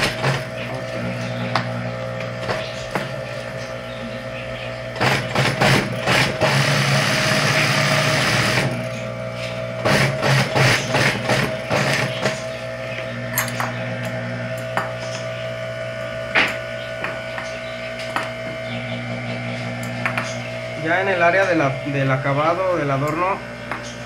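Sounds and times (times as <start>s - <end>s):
sewing machine motor hum: 0.0s - 24.0s
sewing machine stitching: 5.0s - 8.8s, 9.8s - 12.4s.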